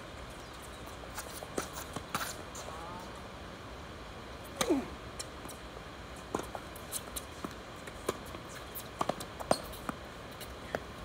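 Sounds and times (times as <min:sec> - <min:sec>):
player grunting: 0:04.6 - 0:05.0.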